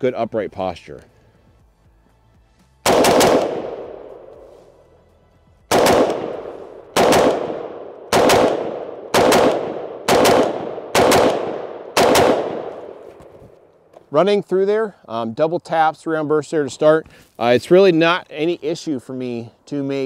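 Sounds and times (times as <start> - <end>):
rifle shots: 2.8 - 4.5, 5.7 - 13.1
gunshot echo: 2.8 - 4.6, 5.7 - 13.3.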